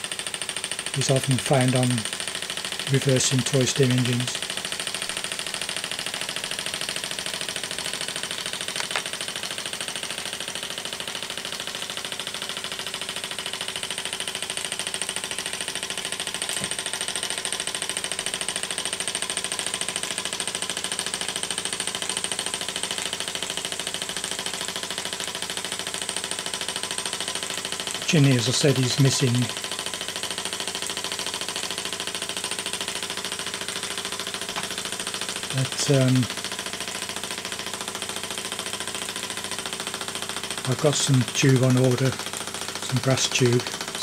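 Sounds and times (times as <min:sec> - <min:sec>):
toy steam engine beat: 0:00.0 - 0:44.0.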